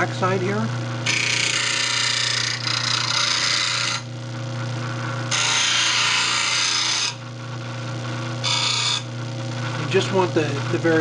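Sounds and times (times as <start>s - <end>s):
bench grinder motor hum: 0.0s - 11.0s
harsh rasping grind: 1.0s - 4.1s, 5.3s - 7.2s.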